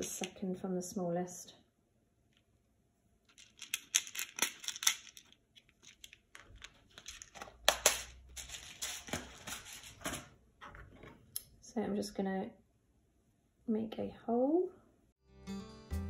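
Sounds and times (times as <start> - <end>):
rustling handling noise: 3.2 - 11.3
small plastic clicks and rattles: 3.3 - 7.9.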